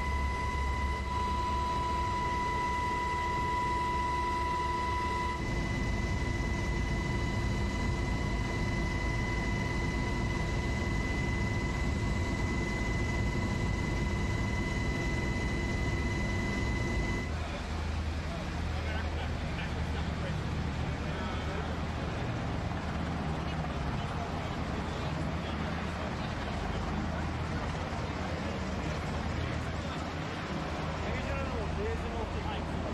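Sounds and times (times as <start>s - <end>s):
high whine: 0.0s - 17.4s
aircraft engine rumble: 0.0s - 32.9s.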